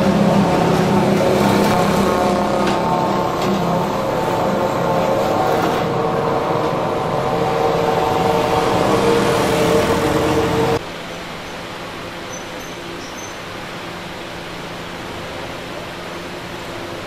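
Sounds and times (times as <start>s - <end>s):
engine running: 0.0s - 10.8s.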